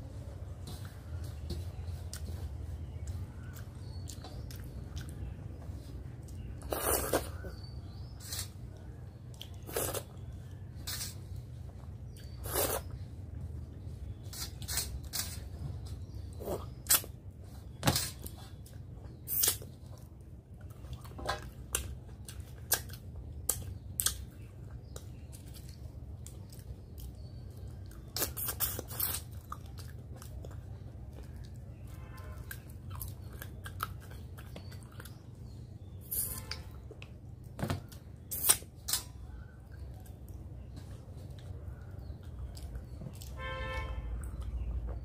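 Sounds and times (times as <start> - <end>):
close chewing with wet crunches: 32.4 - 35.9.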